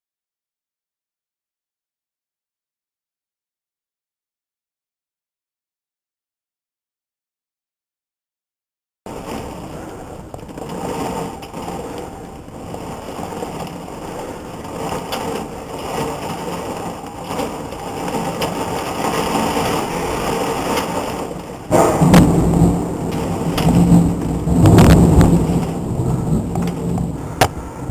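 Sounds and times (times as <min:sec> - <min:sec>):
heavy rain hissing: 0:09.1 - 0:27.9
loud thunderclap: 0:12.7 - 0:27.9.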